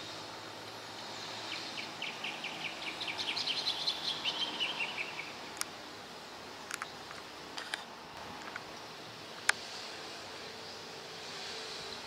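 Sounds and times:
birds singing ringing notes: 1.1 - 5.6.

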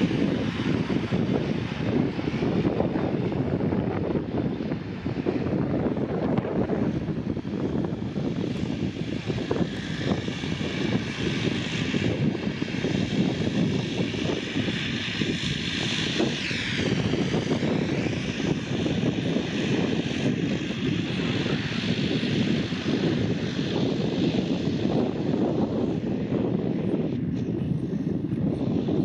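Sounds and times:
turboprop engines running: 0.0 - 29.0.

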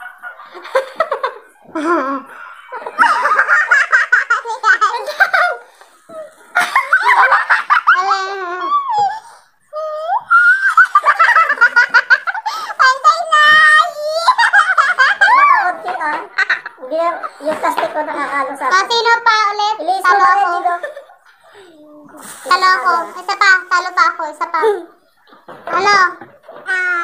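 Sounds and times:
young women laughing: 0.0 - 16.9.

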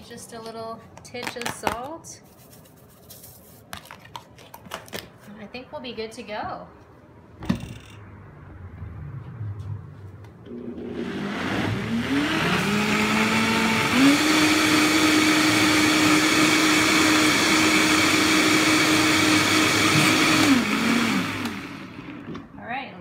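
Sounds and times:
blender motor whine: 10.5 - 22.4.

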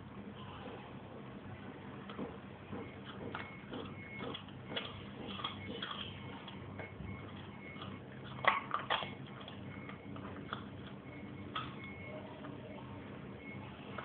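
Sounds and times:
dog gnawing a bone: 2.1 - 11.9.

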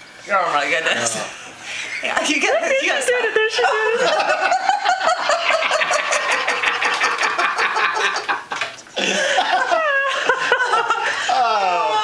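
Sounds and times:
people laughing hard: 3.6 - 12.0.

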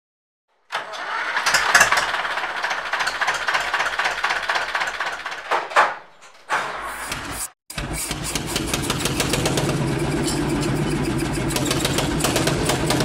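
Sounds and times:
diesel tractor engine rattling: 1.0 - 5.8, 7.7 - 13.0.

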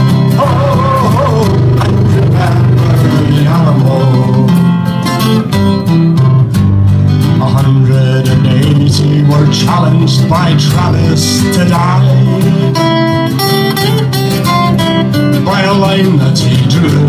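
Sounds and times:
man singing: 0.0 - 5.0, 7.2 - 13.5, 15.3 - 17.0
acoustic guitar strumming: 0.0 - 17.0.

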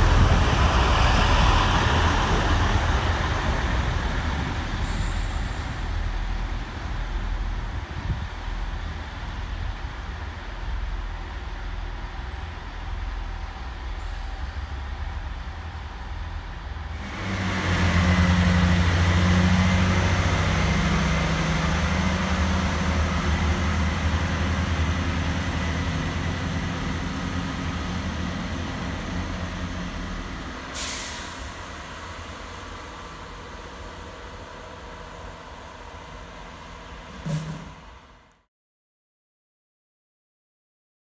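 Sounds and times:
diesel train engines droning: 0.0 - 38.3
air release hiss: 30.7 - 31.5.

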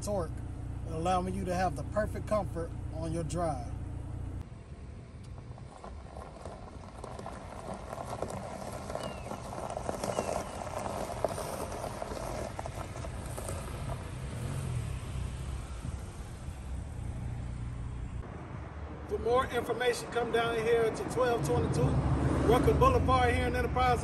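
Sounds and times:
tyres crunching on gravel: 0.0 - 4.4, 5.0 - 18.3, 19.1 - 24.0
low engine rumble: 0.0 - 24.0.

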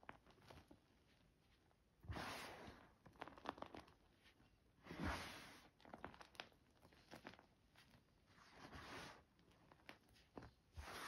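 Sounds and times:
small crackles of falling crumbs: 0.0 - 1.8, 2.9 - 4.5, 5.6 - 8.3.

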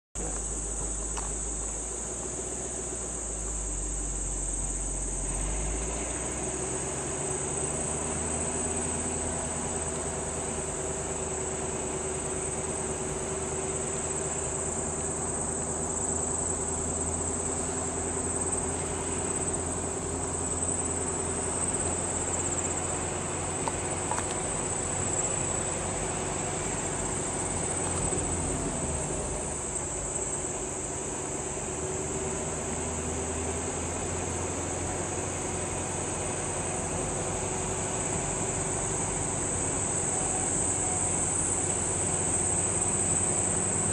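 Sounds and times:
insects trilling: 0.2 - 43.9.

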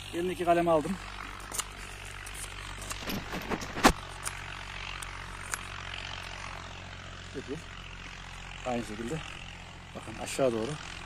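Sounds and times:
low engine-like drone: 0.0 - 11.0.

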